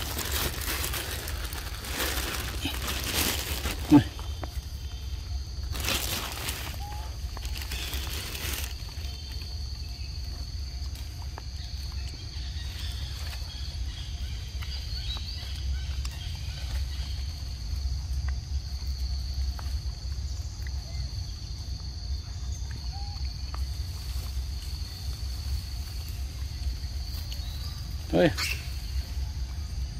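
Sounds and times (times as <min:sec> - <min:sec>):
insects droning: 0:00.0 - 0:29.9.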